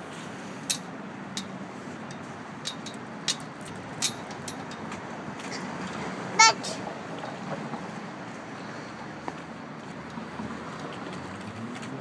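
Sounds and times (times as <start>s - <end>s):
chain-link gate clicking and rattling: 0.7s - 4.9s.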